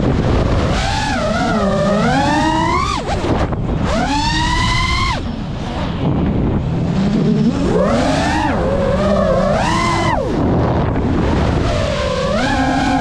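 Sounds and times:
drone motors whining: 0.0s - 13.0s
wind rumble on microphone: 0.0s - 13.0s.

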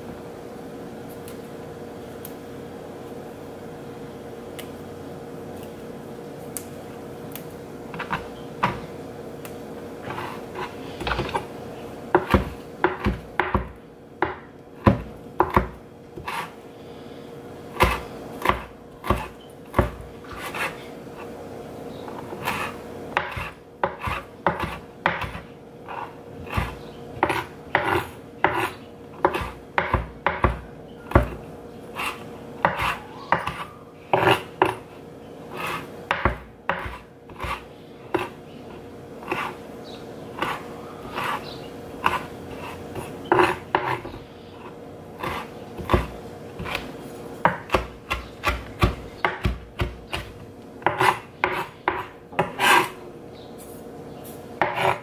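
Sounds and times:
faint steady hum: 0.0s - 55.0s
knife chopping on cutting board: 12.1s - 16.5s, 17.8s - 20.8s, 22.4s - 31.4s, 32.0s - 34.8s, 35.6s - 38.4s, 42.0s - 44.0s, 45.2s - 52.9s, 54.6s - 55.0s.

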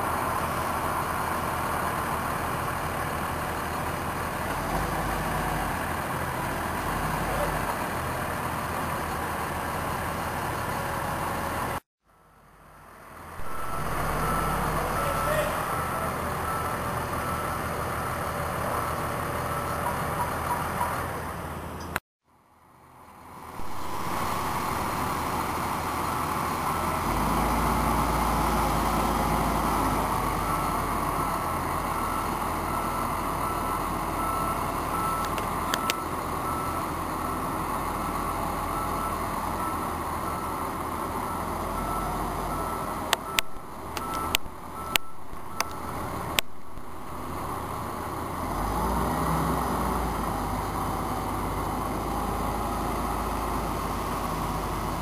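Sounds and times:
forklift engine running: 0.0s - 22.0s, 22.8s - 55.0s
reversing alarm beeping: 13.4s - 20.6s, 23.6s - 29.4s, 30.3s - 37.6s, 38.6s - 48.9s.

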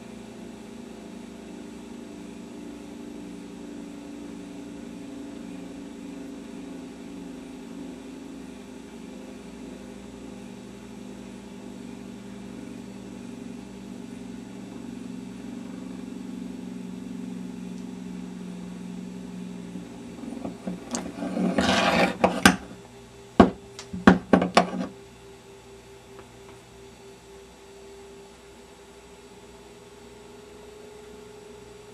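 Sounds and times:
gyroscope rotor humming: 0.0s - 25.0s.

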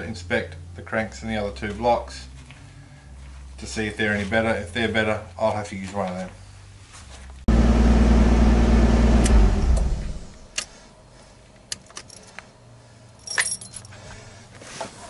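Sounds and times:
car engine running: 7.5s - 10.5s
keys jangling: 11.7s - 12.4s, 13.2s - 14.0s.

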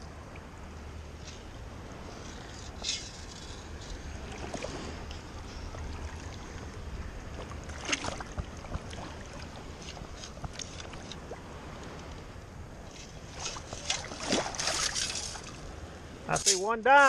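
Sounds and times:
water splashing and draining: 7.3s - 11.4s, 13.3s - 15.6s.

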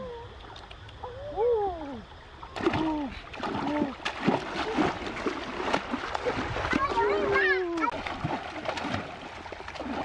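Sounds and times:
splashing in shallow water: 2.0s - 10.0s.

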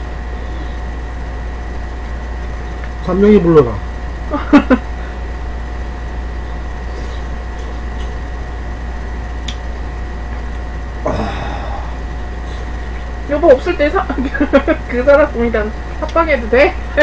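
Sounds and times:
low hum: 0.0s - 17.0s
voice: 3.0s - 4.8s, 11.1s - 11.7s, 13.3s - 17.0s
breathy voice sound: 11.0s - 12.9s.

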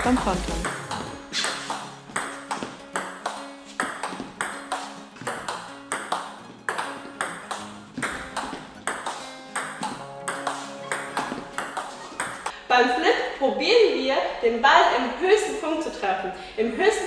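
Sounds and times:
table tennis ball hits: 0.0s - 12.5s.

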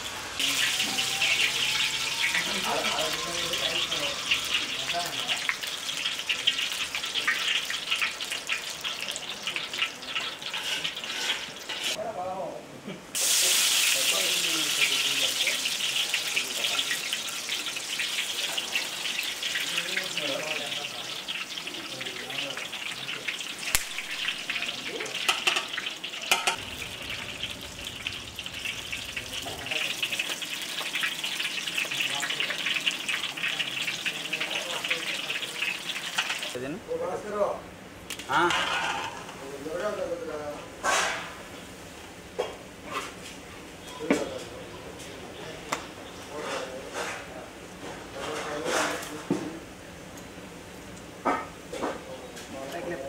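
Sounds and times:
dough frying in hot oil: 0.0s - 12.0s, 13.2s - 36.7s.

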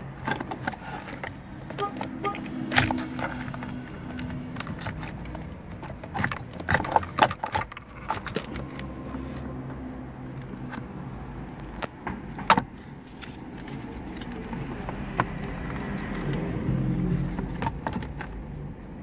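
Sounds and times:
plastic clicks and rattles: 0.0s - 9.5s, 17.1s - 18.4s.

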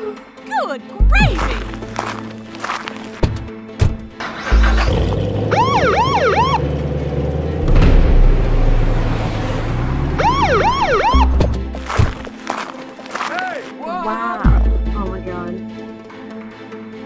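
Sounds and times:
car engine starting and rumbling: 3.2s - 12.3s
police siren whoops: 5.5s - 6.6s, 10.2s - 11.2s.

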